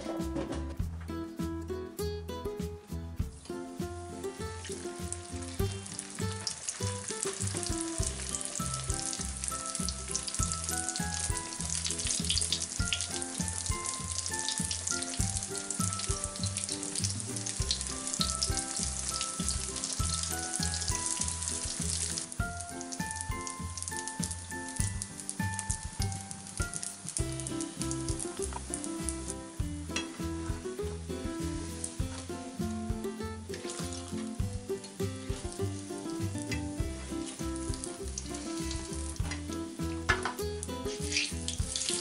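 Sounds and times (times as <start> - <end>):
background music: 0.0 - 42.0
dough sizzling in hot oil: 3.2 - 42.0.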